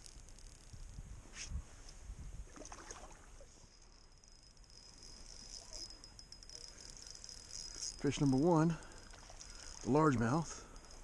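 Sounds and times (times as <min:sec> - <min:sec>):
fishing reel ticking: 0:00.0 - 0:01.0, 0:03.7 - 0:11.0.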